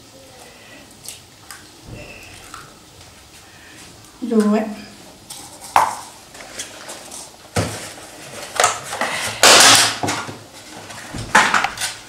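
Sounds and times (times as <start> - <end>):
dishes knocking and clattering: 11.1 - 12.0.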